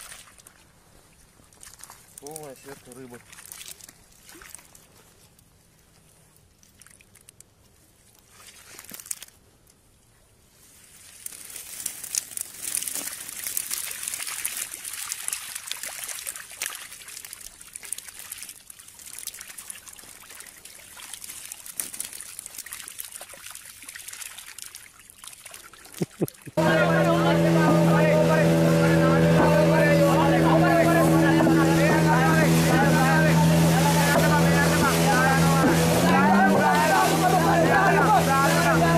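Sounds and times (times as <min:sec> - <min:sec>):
water dripping from net: 0:01.5 - 0:04.8, 0:06.6 - 0:07.5, 0:11.1 - 0:26.6
small fish slapping on wet mud: 0:11.2 - 0:26.5.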